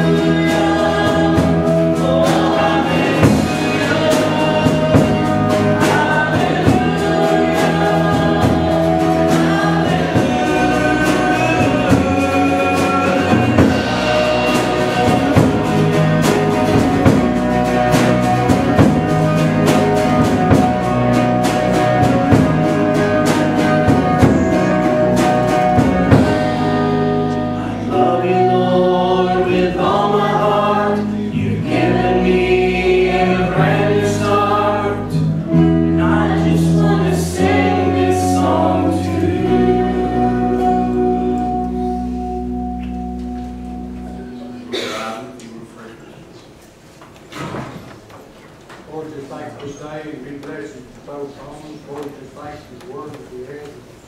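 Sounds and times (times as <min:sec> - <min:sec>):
people singing: 0:00.0 - 0:42.8
electric bass: 0:00.0 - 0:44.7
drum kit: 0:00.0 - 0:45.0
acoustic guitar: 0:00.0 - 0:54.0.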